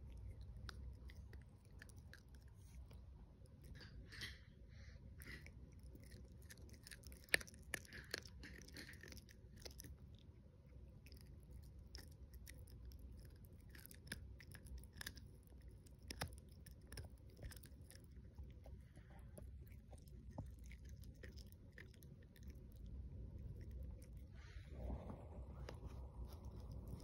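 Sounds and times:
puppy chewing wetly: 0:00.0 - 0:04.1, 0:05.1 - 0:27.0
teeth clicking on chew stick: 0:05.2 - 0:18.8, 0:19.4 - 0:24.3.

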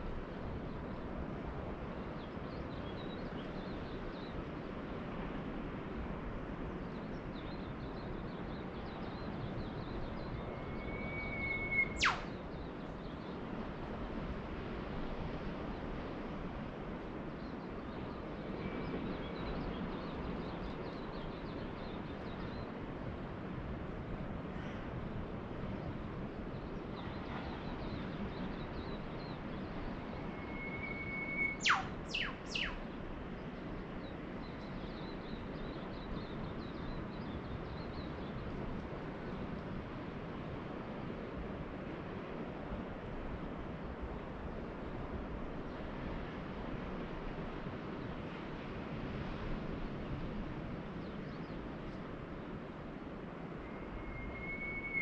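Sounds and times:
distant ocean surf: 0:00.0 - 0:55.0
faint bird chirps: 0:09.2 - 0:12.7, 0:29.6 - 0:32.8, 0:53.6 - 0:55.0
bird whistle with whip-crack: 0:10.4 - 0:12.4, 0:30.2 - 0:32.8, 0:53.7 - 0:55.0.

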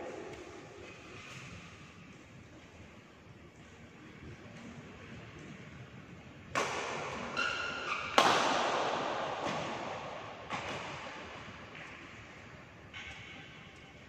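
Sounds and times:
shuttlecock struck by rackets: 0:06.5 - 0:07.4, 0:08.1 - 0:11.3
shoe squeak: 0:07.3 - 0:08.2.

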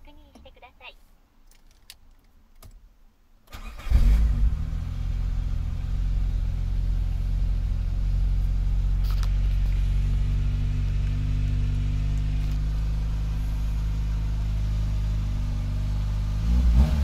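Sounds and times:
car engine cranking: 0:03.5 - 0:14.2
car engine idling: 0:03.8 - 0:17.0.

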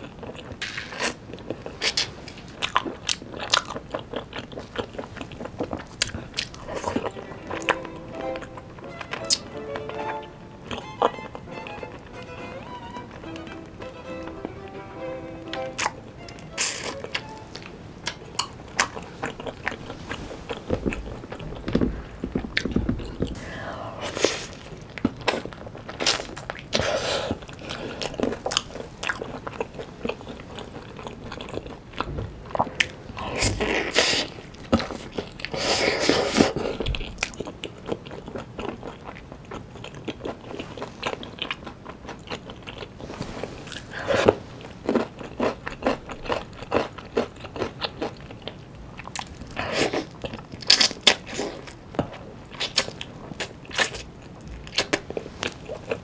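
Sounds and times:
crunching fried chicken: 0:00.0 - 0:09.5, 0:44.6 - 0:56.0
chewing: 0:00.0 - 0:09.9, 0:10.6 - 0:11.4, 0:15.8 - 0:23.5, 0:24.1 - 0:56.0.

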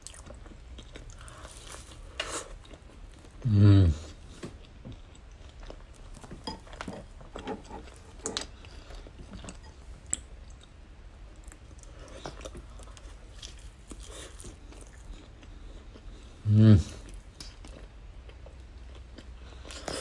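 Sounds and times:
chewing bread: 0:00.0 - 0:20.0.

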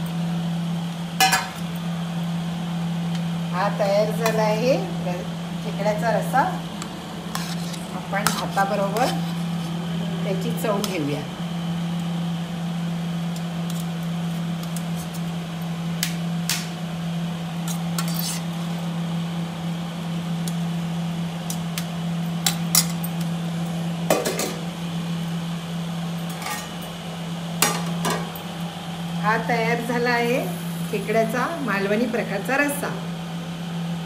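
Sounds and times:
steady low hum: 0:00.0 - 0:34.0
spoon scraping steel plates: 0:17.7 - 0:18.5.

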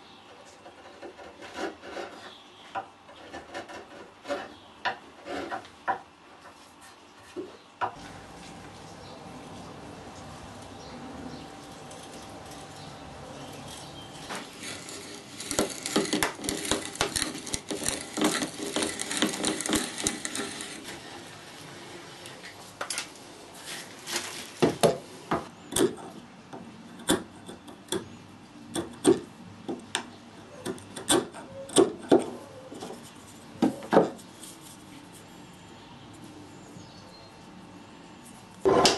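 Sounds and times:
auger bit boring into wood: 0:14.6 - 0:21.0.

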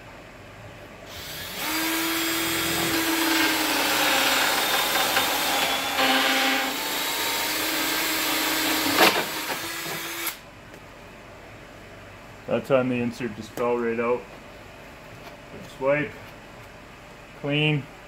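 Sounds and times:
cordless drill motor whine: 0:01.1 - 0:10.4
hole saw cutting plastic pipe: 0:01.1 - 0:10.4.

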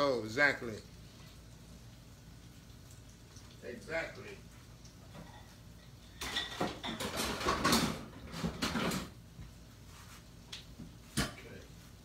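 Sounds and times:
kitchen rustling and clattering: 0:04.6 - 0:12.0.

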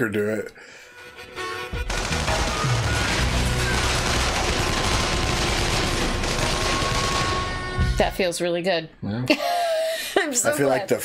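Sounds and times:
rapid gunfire: 0:01.8 - 0:08.1.

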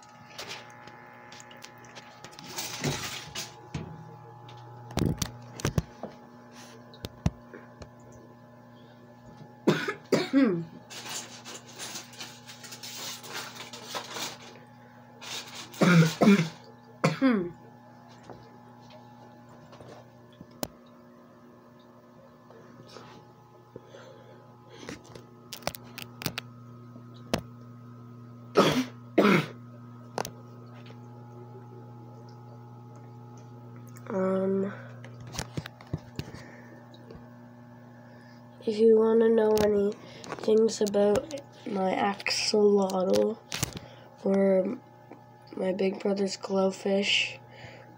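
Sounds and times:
steady low hum: 0:00.0 - 0:47.9
person coughing: 0:09.6 - 0:10.7, 0:15.8 - 0:17.6, 0:28.6 - 0:29.6.

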